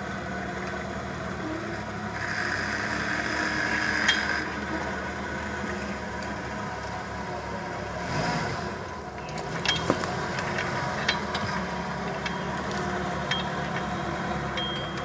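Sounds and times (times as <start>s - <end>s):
engine running at low revs: 0.0s - 15.0s
sharp clicks and knocks: 9.2s - 15.0s.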